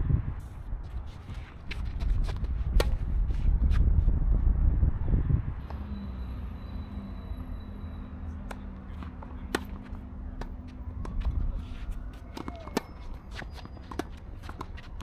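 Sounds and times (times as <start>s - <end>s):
low rumble: 2.0s - 5.9s
tennis ball taps: 8.5s - 11.4s.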